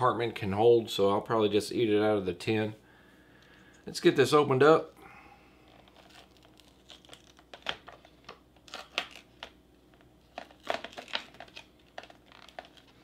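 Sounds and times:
foil lid crinkling: 5.6s - 13.0s.

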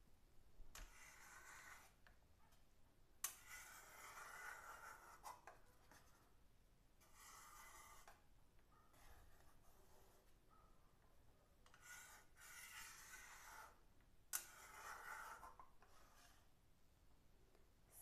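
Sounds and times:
metal spatula scraping a pan: 0.8s - 2.0s, 3.3s - 5.5s, 7.0s - 8.2s, 11.7s - 13.8s, 14.4s - 16.5s.

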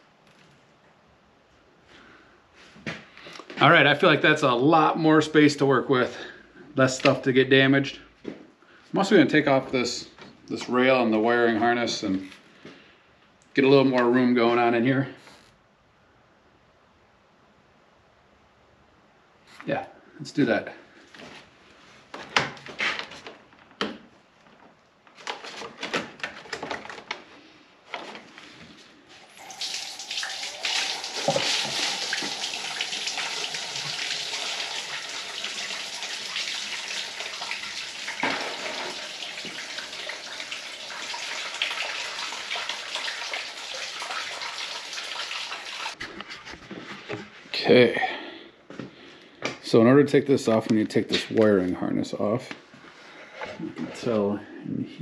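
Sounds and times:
coolant pouring and splashing: 29.3s - 46.0s.

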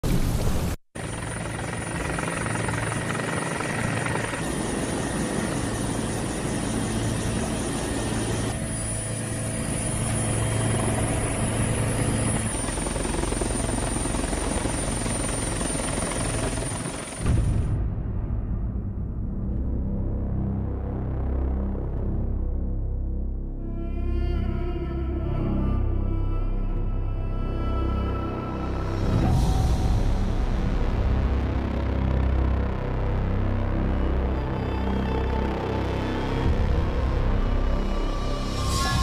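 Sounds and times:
helicopter rotor and engine: 1.0s - 17.5s, 29.1s - 39.0s
low dark music: 4.0s - 39.0s.

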